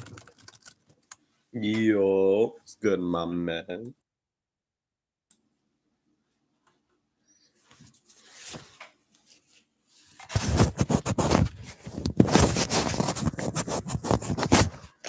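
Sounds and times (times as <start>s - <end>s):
hand scraping on microphone: 10.2s - 15.0s.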